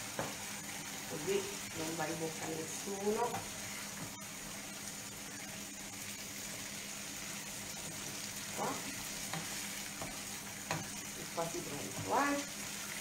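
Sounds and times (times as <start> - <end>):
sauce sizzling in a frying pan: 0.0 - 13.0.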